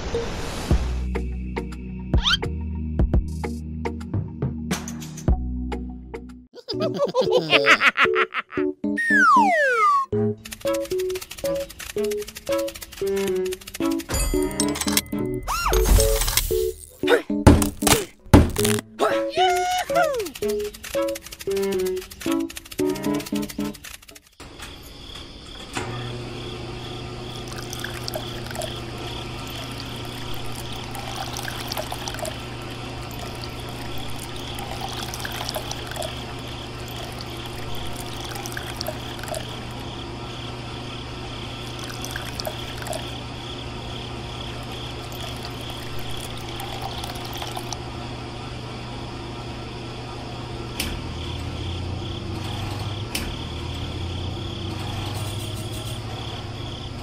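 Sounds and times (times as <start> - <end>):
electric water pump humming: 26.1 - 52.9
water pouring and trickling: 27.3 - 39.8, 41.7 - 43.2, 44.7 - 47.8.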